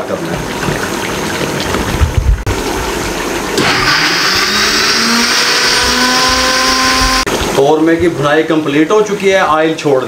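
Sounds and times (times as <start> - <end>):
blender motor whining: 3.6 - 7.3.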